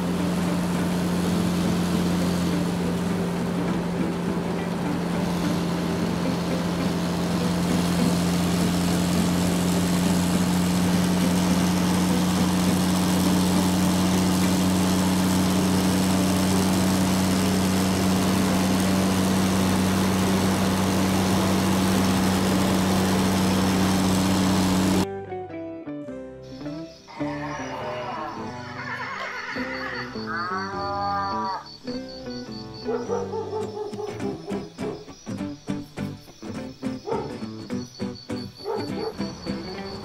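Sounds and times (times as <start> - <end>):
truck engine droning: 0.0 - 25.1, 26.4 - 40.0.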